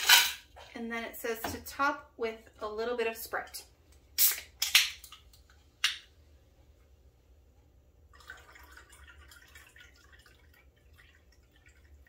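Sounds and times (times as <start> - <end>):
soda pouring and fizzing: 8.1 - 12.0.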